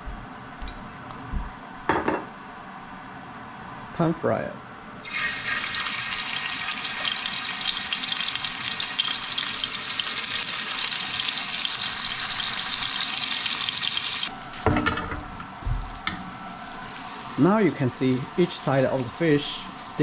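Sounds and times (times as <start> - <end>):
fish sizzling in hot oil: 5.0 - 14.3, 15.8 - 20.0.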